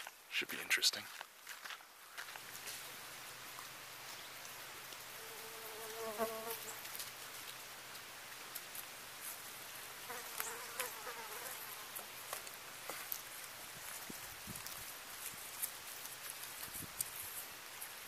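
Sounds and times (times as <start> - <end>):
flying insect buzzing: 5.1 - 6.8, 10.1 - 12.0
faint ticks and clicks: 11.9 - 18.0.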